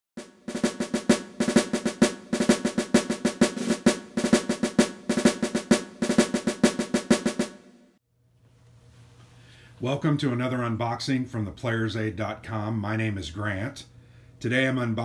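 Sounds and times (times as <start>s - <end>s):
rapid snare drum strokes: 0.2s - 8.0s.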